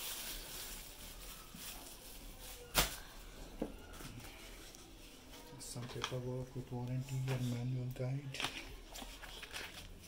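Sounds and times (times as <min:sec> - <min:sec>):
plastic bag rustling: 0:00.0 - 0:06.1, 0:08.3 - 0:10.0.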